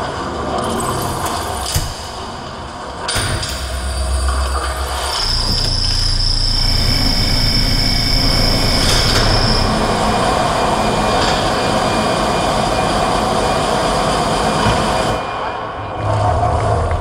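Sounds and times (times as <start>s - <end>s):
mechanical rumble and grinding: 0.1s - 15.2s
high steady screech: 4.8s - 14.2s.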